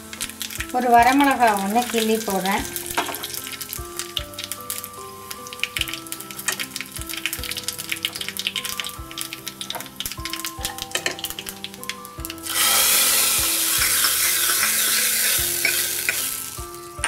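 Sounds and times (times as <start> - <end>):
loud sizzling: 0.0 - 17.0
seeds crackling in hot oil: 0.0 - 17.0.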